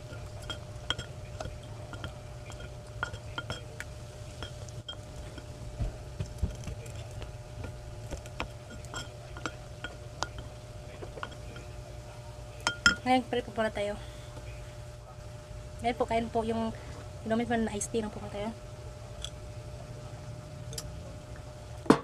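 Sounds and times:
spoon clinking in glass bowl: 0.0s - 5.4s, 8.7s - 10.5s, 11.1s - 11.7s, 12.6s - 13.1s
steady low hum: 0.0s - 22.0s.

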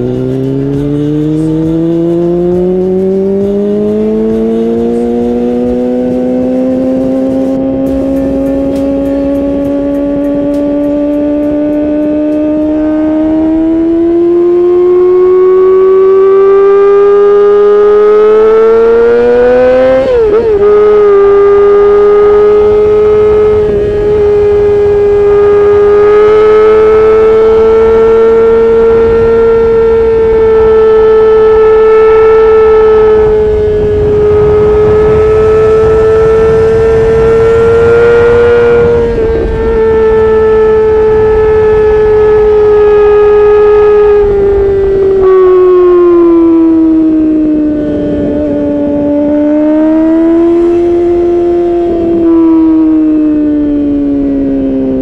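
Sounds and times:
motorcycle engine wailing at high revs: 0.0s - 55.0s.

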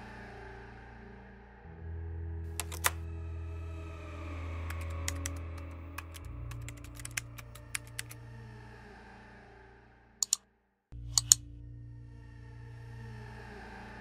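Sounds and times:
low background music drone: 0.0s - 9.8s, 11.0s - 14.0s
typing on computer keyboard: 2.6s - 3.0s, 4.7s - 8.2s.

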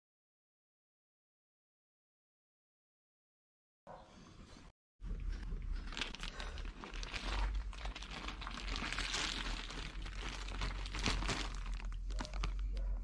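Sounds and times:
plastic bag crinkling: 5.7s - 13.0s.

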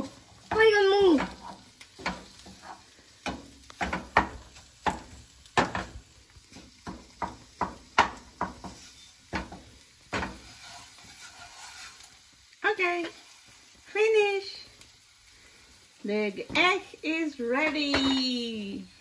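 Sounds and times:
spatula scraping frying pan: 0.2s - 13.7s.

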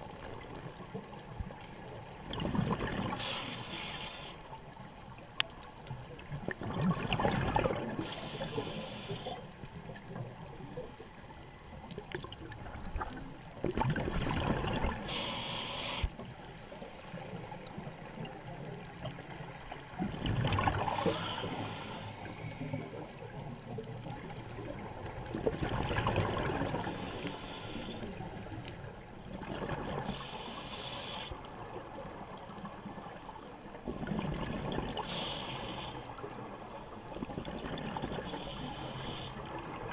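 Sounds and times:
exhaled bubbles underwater: 0.0s - 3.4s, 6.2s - 8.4s, 12.0s - 15.3s, 19.9s - 21.8s, 22.4s - 27.4s, 28.1s - 30.3s, 33.8s - 36.4s, 37.2s - 39.9s
regulator inhale hiss: 3.1s - 6.2s, 8.0s - 9.7s, 10.4s - 12.0s, 15.0s - 18.4s, 20.8s - 23.7s, 26.5s - 28.6s, 30.0s - 31.5s, 32.3s - 34.1s, 35.0s - 39.6s.

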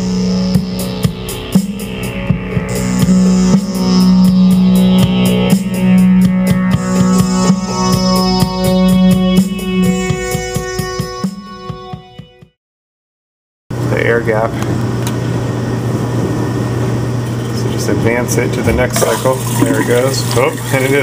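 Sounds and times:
drum beat: 0.0s - 8.0s
electronic keyboard: 0.0s - 12.4s.

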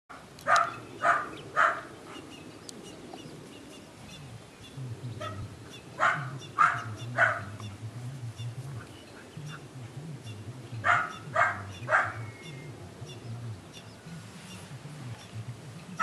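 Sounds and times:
puppy barking: 0.5s - 1.9s, 5.2s - 5.4s, 6.0s - 7.6s, 10.8s - 12.2s.

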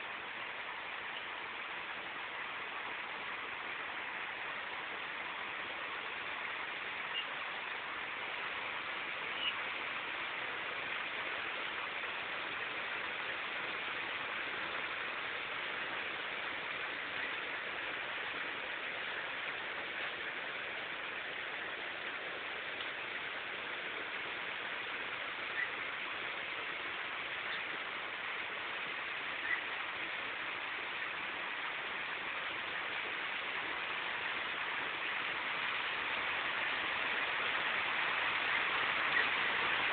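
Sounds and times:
heavy rain on concrete: 0.0s - 39.9s.

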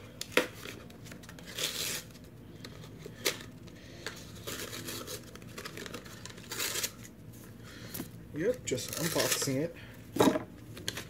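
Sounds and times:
packaging tearing: 0.6s - 2.2s, 4.3s - 7.1s, 8.7s - 9.6s
packaging crinkling: 0.6s - 7.1s, 8.4s - 9.7s.

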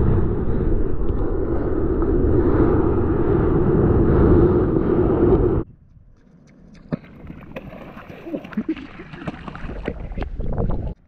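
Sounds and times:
muffled underwater rumble: 0.0s - 5.7s.

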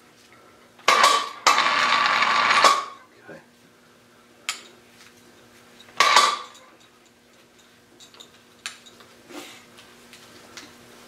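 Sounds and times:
faint steady hum: 0.0s - 11.0s
metal clank: 6.0s - 6.7s.

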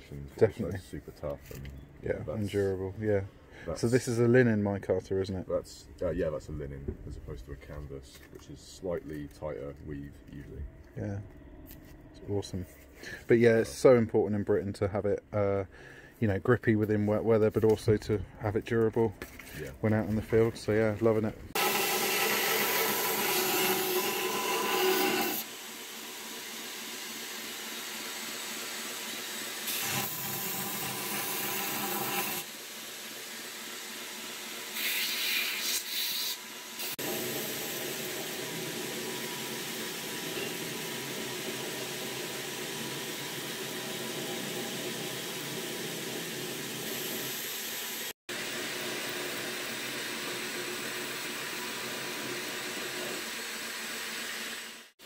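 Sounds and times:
belt grinder sanding: 21.6s - 25.5s.

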